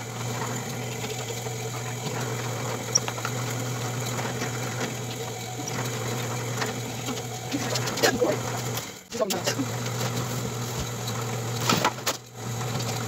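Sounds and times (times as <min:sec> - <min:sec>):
drill press humming: 0:00.0 - 0:13.0.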